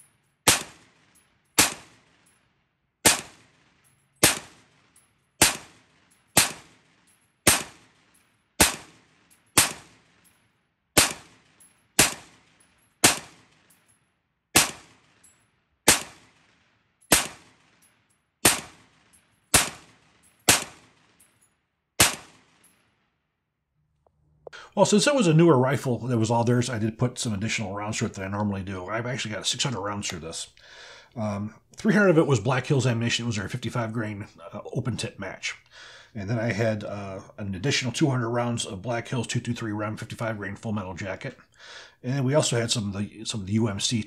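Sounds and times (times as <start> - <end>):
rifle shots: 0.4 - 2.3, 3.0 - 10.3, 11.0 - 13.7, 14.6 - 15.2, 15.8 - 17.8, 18.4 - 21.2, 22.0 - 22.7.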